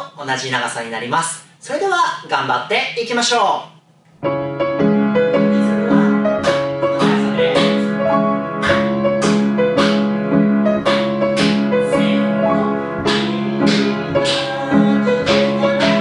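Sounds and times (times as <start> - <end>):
piano playing bouncy tune: 4.2 - 16.0
hand claps: 10.8 - 11.6, 15.2 - 16.0.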